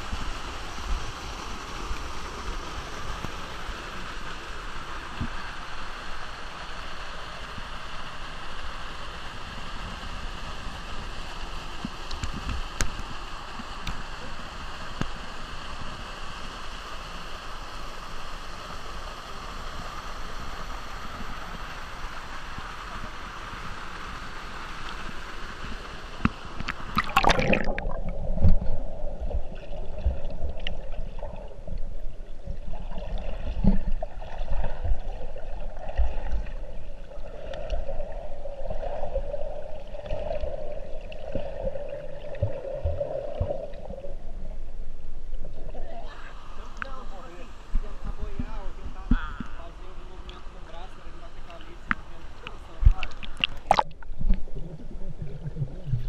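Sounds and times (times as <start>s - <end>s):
rushing water hiss: 0.0s - 55.0s
low underwater drone: 0.0s - 56.0s
muffled underwater gurgling: 26.5s - 44.3s, 51.5s - 56.0s
splash: 26.6s - 28.6s, 52.8s - 54.0s.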